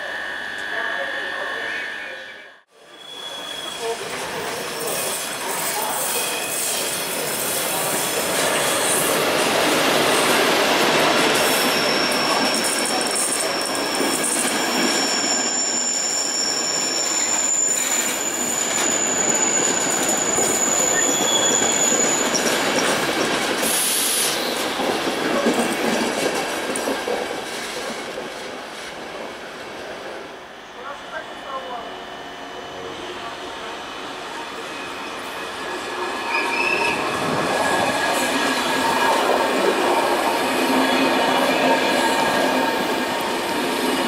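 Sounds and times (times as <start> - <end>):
train wheels rumbling on rail: 3.9 - 30.4, 32.5 - 44.0
wheels squealing: 11.6 - 23.0.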